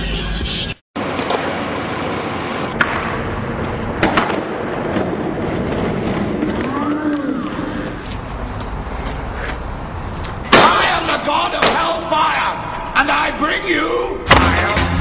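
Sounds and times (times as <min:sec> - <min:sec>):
skateboard wheels rolling on concrete: 0:01.0 - 0:12.3.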